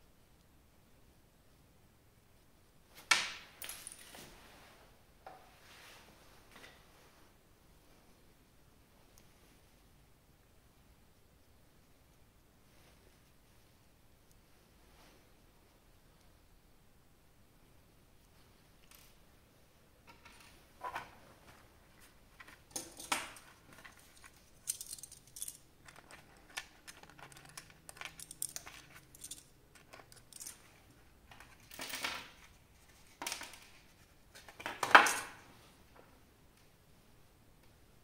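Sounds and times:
plastic parts clicking and clattering: 20.1 - 32.5.

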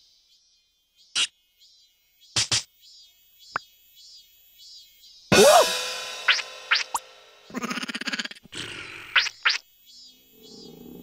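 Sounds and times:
high chirps: 5.3 - 8.1.

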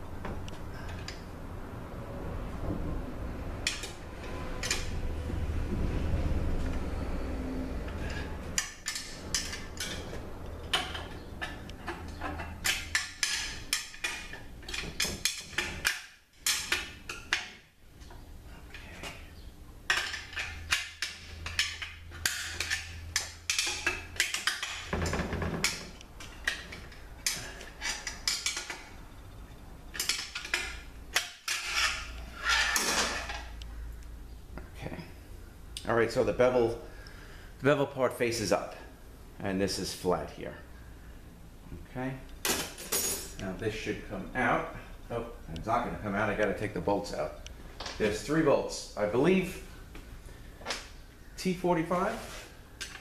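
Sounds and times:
metal clicking and scraping: 7.9 - 19.2, 19.9 - 28.9.

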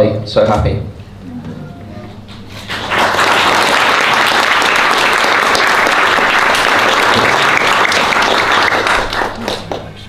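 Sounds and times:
audience applauding: 2.5 - 10.0.

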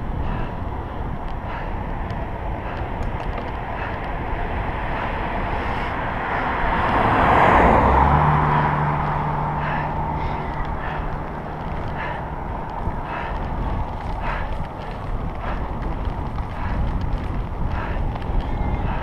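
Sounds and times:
car passing: 0.0 - 19.0
low engine hum: 0.0 - 19.0
road noise: 0.0 - 19.0
wind: 0.0 - 19.0.

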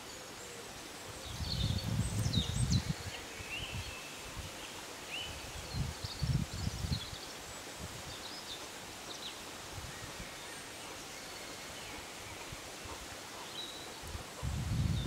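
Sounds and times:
faint steady hiss: 0.0 - 15.0
low rumble on microphone: 1.3 - 3.1, 14.1 - 15.0.

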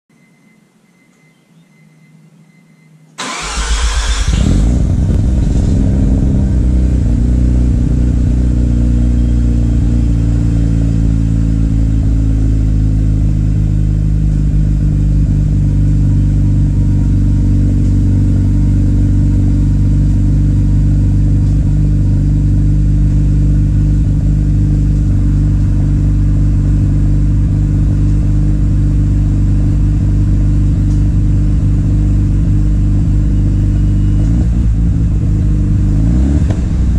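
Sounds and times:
rotary engine starting and idling: 3.2 - 8.3.

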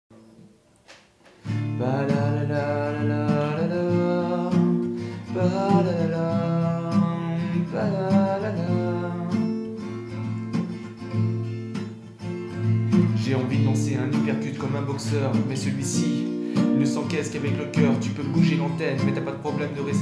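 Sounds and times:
acoustic guitar: 0.1 - 20.0
man singing slow melody: 1.5 - 10.1, 13.0 - 20.0.

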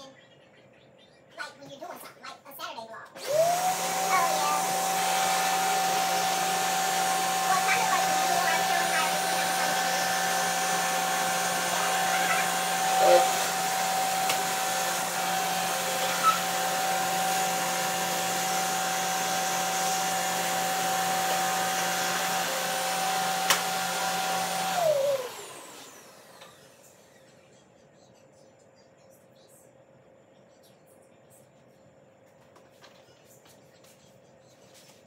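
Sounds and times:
vacuum cleaner motor whine: 3.2 - 27.4.

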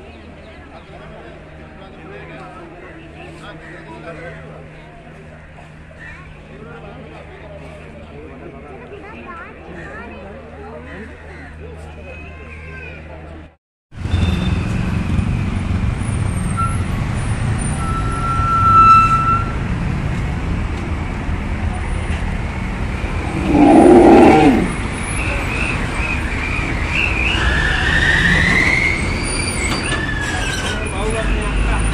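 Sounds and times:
road traffic: 13.9 - 31.9.

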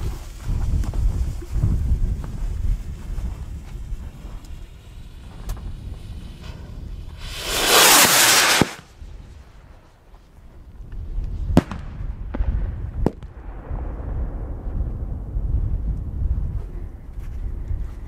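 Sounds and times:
firework rushing hiss: 3.5 - 9.0
firework bangs: 5.2 - 8.9.

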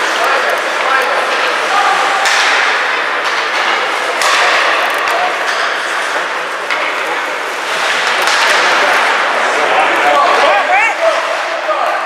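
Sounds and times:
sticks and puck knocking: 2.2 - 7.2, 7.8 - 9.1
skate blades scraping ice: 5.3 - 12.0.

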